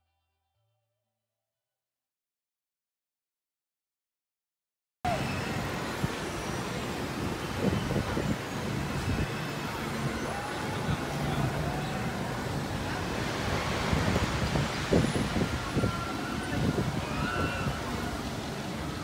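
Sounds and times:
faint distant voices: 5.1 - 19.0
wind buffeting microphone: 5.1 - 19.0.

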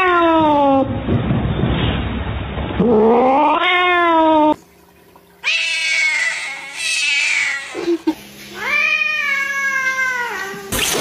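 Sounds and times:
cat yowling: 2.9 - 4.6.

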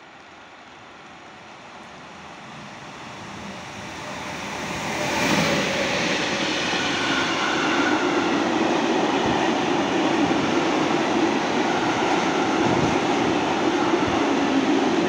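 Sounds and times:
freight train passing: 0.0 - 15.0.

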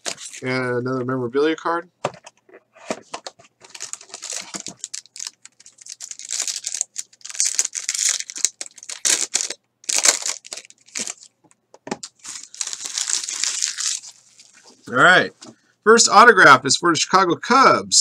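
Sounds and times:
plastic wrapper crinkling and tearing: 0.0 - 0.5, 3.2 - 14.9.

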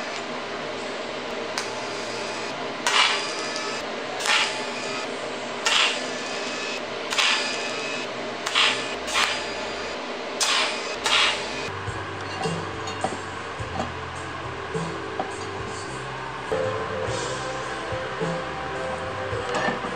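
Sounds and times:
welding arc buzzing and hissing: 0.0 - 11.8.

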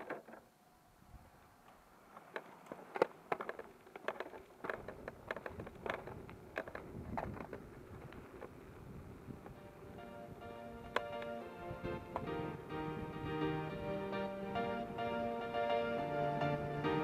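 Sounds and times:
board clicking and rattling: 0.0 - 0.5, 2.1 - 9.6, 10.4 - 12.4
wheels rumbling on pavement: 0.0 - 17.0.

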